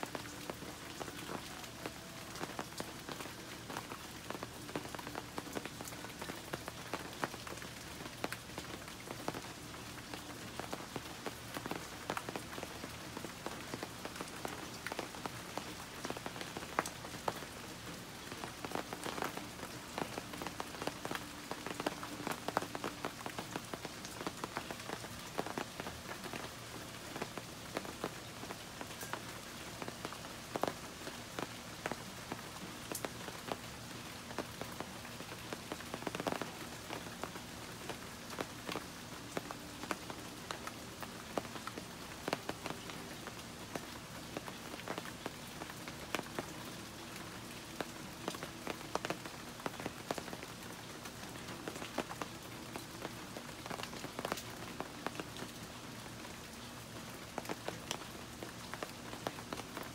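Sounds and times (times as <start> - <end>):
raindrops tapping: 0.0 - 59.9
steady rain: 0.0 - 59.9.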